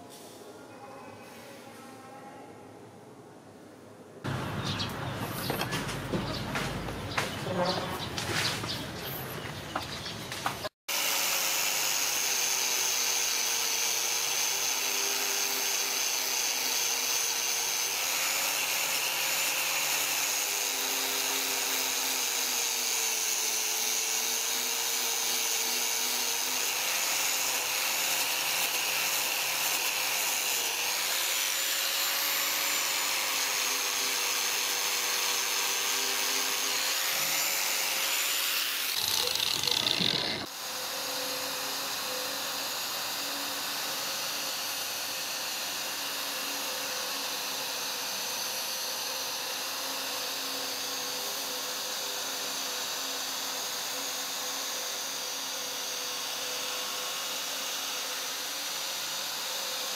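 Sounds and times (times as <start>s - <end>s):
angle grinder wire brush on steel: 24.1s - 48.4s.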